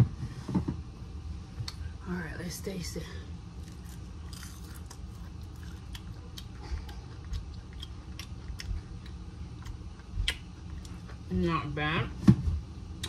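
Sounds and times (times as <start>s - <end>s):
low steady hum: 0.0s - 13.0s
person chewing crunchy food: 3.6s - 11.3s.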